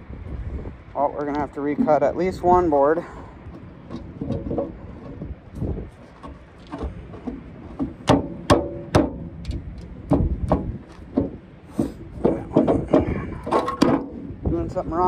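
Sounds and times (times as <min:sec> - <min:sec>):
wooden boards knocking: 0:06.1 - 0:14.2.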